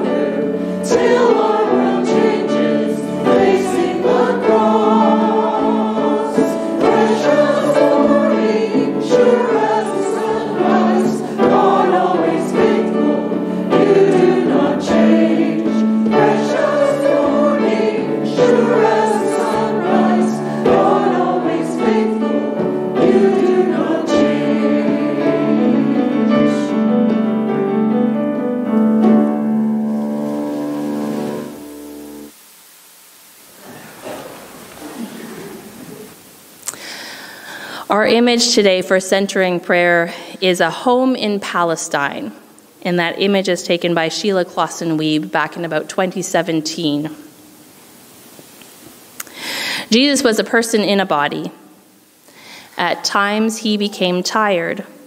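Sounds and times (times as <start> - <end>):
choir singing: 0.0 - 26.9, 29.9 - 32.3
piano accompaniment: 0.0 - 32.4.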